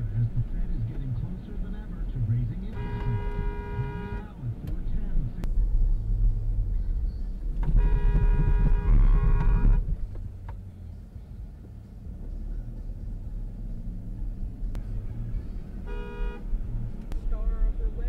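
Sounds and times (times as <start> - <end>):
car engine and road rumble: 0.0 - 18.0
car horn honking: 2.6 - 4.4, 7.6 - 10.0, 15.8 - 16.6.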